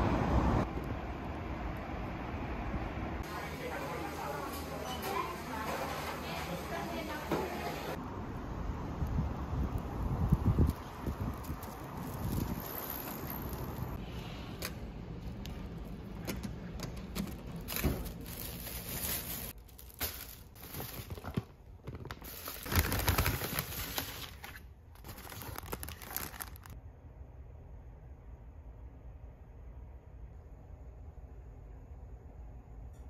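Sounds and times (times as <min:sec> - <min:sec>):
plastic bag rustling: 0:17.3 - 0:26.8.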